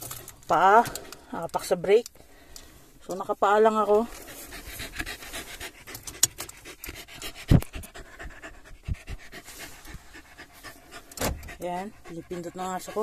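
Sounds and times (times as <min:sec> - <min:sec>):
dog panting: 0:04.2 - 0:13.0
thump: 0:11.2 - 0:11.6.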